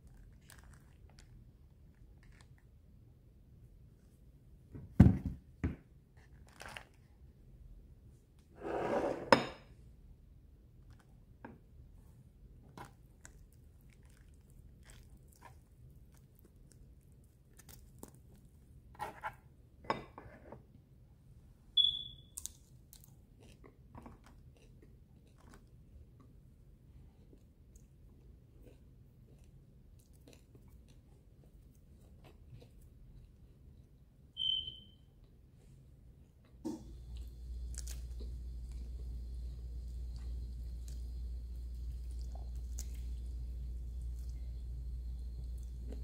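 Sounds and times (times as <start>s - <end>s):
quiet chewing: 0.0s - 2.7s, 12.7s - 18.6s, 22.4s - 33.9s, 36.8s - 46.0s
noisy crunch: 36.8s - 46.0s.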